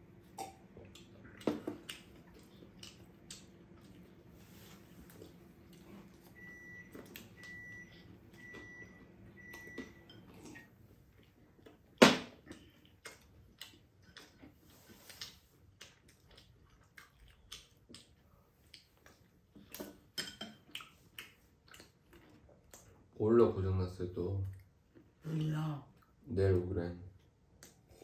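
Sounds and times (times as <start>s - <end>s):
low steady hum: 0.0s - 28.0s
electronic appliance beeps: 6.3s - 10.3s.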